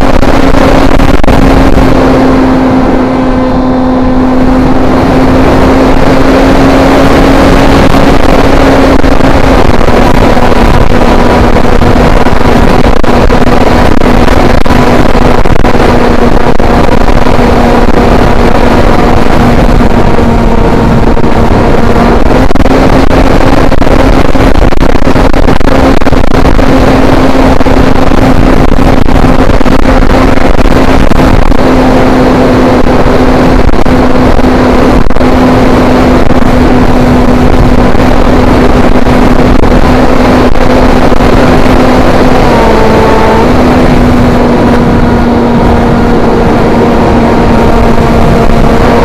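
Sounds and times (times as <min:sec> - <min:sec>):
wind rush on microphone: 0:00.0 - 0:49.0.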